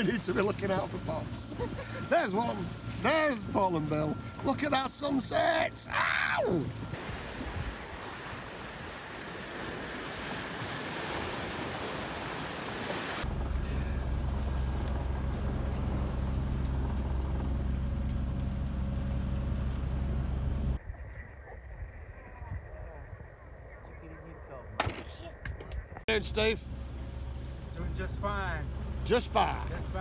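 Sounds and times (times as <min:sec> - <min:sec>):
wind and sea hiss: 0:00.0 - 0:16.0
boat engine running: 0:00.0 - 0:20.8, 0:26.1 - 0:30.0.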